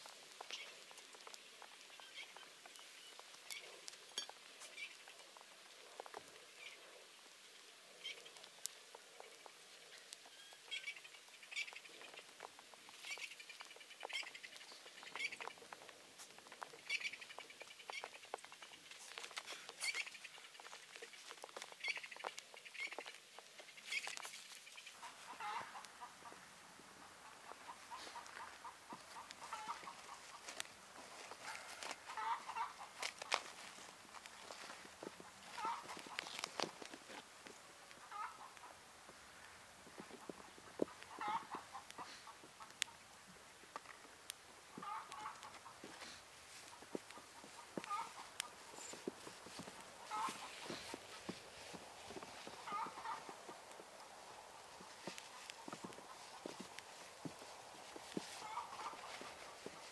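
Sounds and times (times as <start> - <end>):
campfire crackling: 0.0 - 59.9
footsteps crunching in snow: 11.9 - 26.5, 27.3 - 37.6, 44.7 - 59.9.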